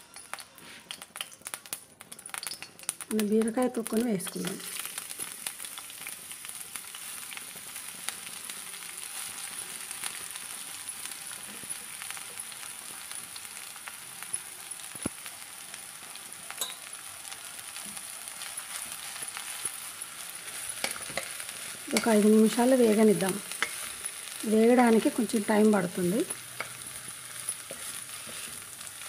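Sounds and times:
peels sizzling in hot oil: 0:00.0 - 0:29.0.

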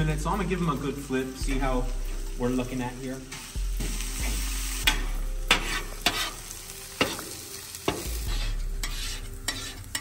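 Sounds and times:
potatoes sizzling on griddle: 0:00.0 - 0:10.0
metal spatula scraping: 0:03.9 - 0:10.0.

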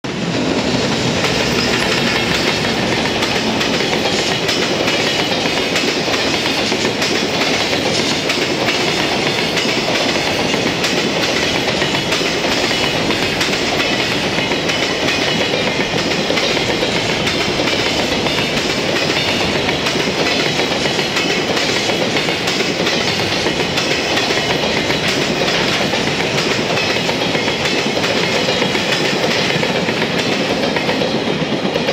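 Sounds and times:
electric locomotive passing: 0:00.0 - 0:31.9
train wheels clattering on rails: 0:00.1 - 0:31.9.

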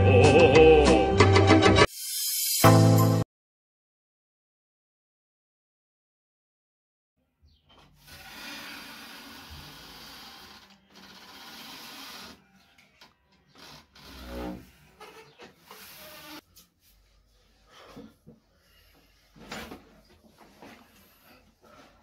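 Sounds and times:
wooden door rasping open: 0:08.0 - 0:12.4, 0:13.5 - 0:16.4.

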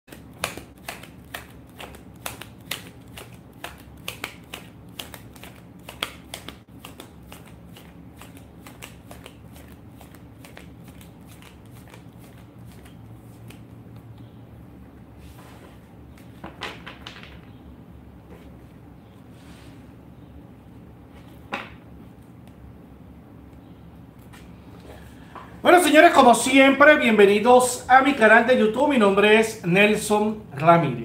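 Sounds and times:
cards being shuffled: 0:00.1 - 0:13.8
low steady hum: 0:00.1 - 0:16.6, 0:17.2 - 0:31.0.

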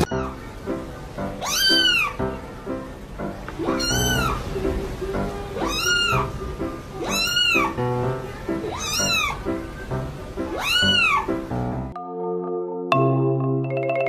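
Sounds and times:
kitten meowing: 0:00.0 - 0:00.4, 0:01.4 - 0:02.2, 0:03.6 - 0:04.5, 0:05.6 - 0:06.4, 0:07.0 - 0:08.0, 0:08.6 - 0:09.5, 0:10.4 - 0:11.4
background music: 0:00.0 - 0:14.0.

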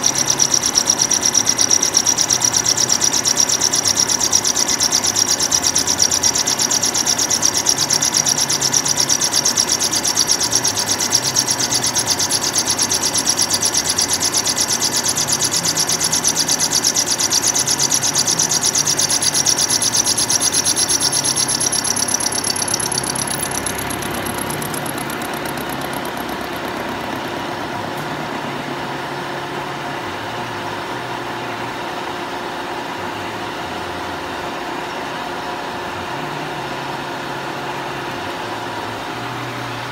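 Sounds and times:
high ringing whine: 0:00.0 - 0:31.0.

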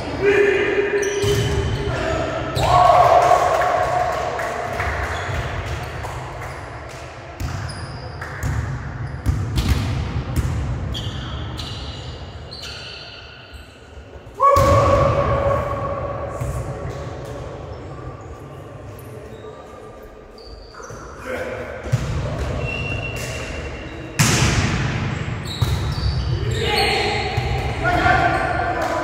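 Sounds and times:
volleyball hits and thuds: 0:08.4 - 0:10.8, 0:24.2 - 0:26.0
shoe squeaks: 0:10.9 - 0:13.9, 0:19.0 - 0:21.2, 0:22.6 - 0:24.1, 0:25.4 - 0:27.1.

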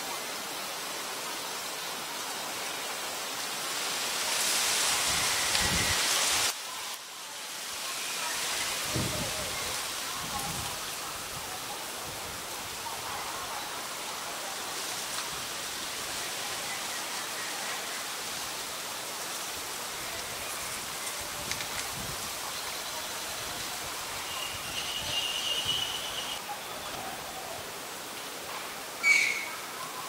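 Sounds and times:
outdoor background hiss: 0:00.0 - 0:30.0
faint clicks: 0:21.0 - 0:22.0
thin high steady tone: 0:22.4 - 0:26.8.

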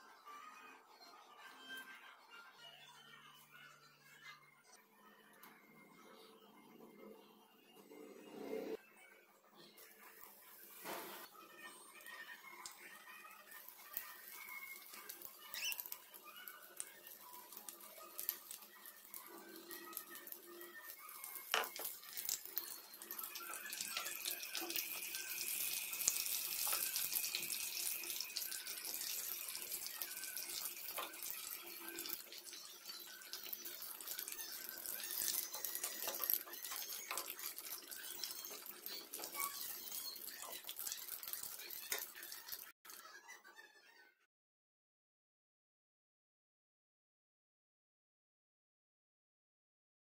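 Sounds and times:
fritters sizzling in hot oil: 0:11.9 - 0:42.8.

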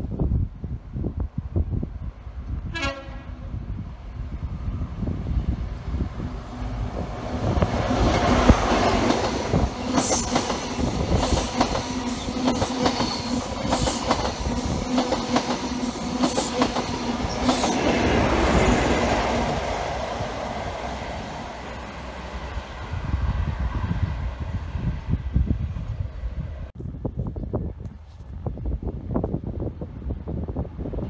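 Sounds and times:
train engine passing: 0:02.2 - 0:26.7
clickety-clack of wheels over rail joints: 0:06.8 - 0:19.6.

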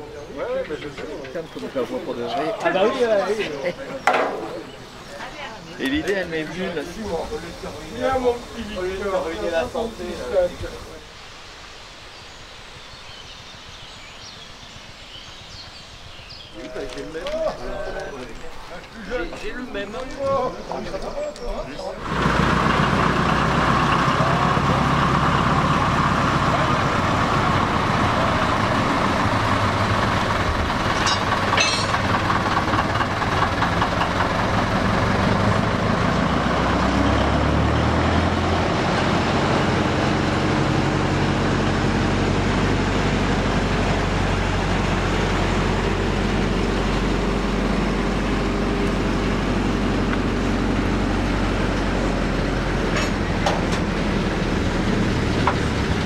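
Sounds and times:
diesel locomotive running: 0:00.0 - 0:11.1, 0:21.8 - 0:56.0
steady steam hiss: 0:04.7 - 0:16.6.

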